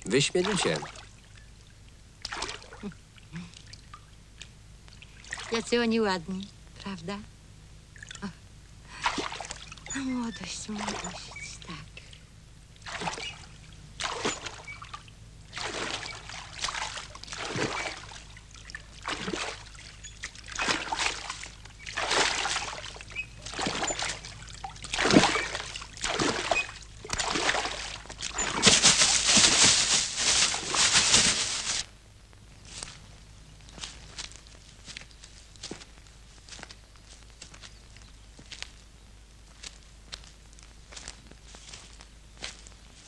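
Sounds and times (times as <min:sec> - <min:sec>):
water splashing in a pond: 0:00.1 - 0:01.3, 0:02.2 - 0:04.1, 0:05.0 - 0:05.8, 0:09.0 - 0:12.2, 0:12.8 - 0:31.8.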